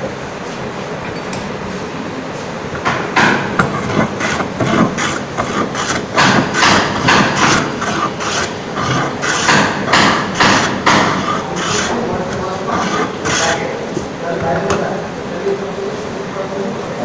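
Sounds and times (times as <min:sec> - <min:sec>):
hand plane shaving wood: 0:03.7 - 0:09.7, 0:10.4 - 0:13.6.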